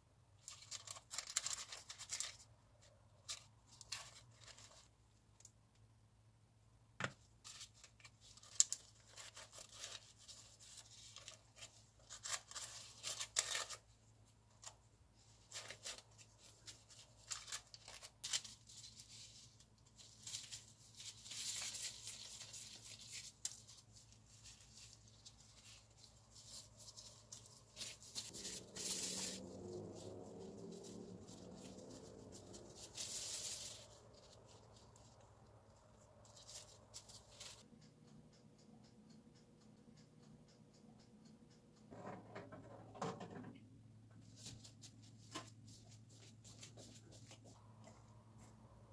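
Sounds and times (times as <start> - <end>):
paper and plastic bag rustling: 15.5 - 34.9.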